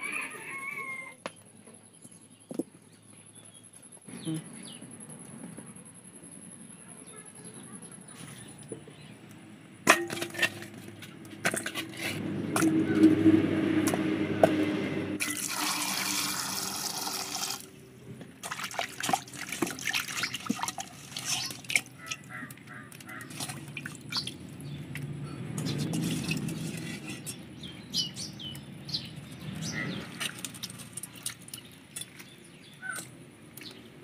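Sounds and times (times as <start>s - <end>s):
small splashes and knocks: 9.8s - 13.2s, 18.2s - 27.4s, 29.1s - 33.8s
water pouring into metal bowl: 15.2s - 17.7s, 18.4s - 22.2s.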